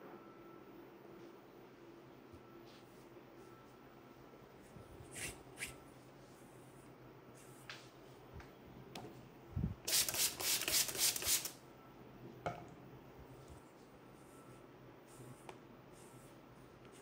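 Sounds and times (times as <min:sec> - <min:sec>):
spray bottle hissing: 0:09.9 - 0:11.6.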